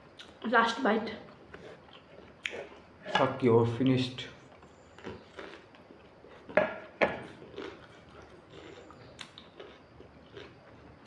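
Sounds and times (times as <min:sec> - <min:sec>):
faint chewing: 0:01.2 - 0:03.0, 0:04.4 - 0:11.0.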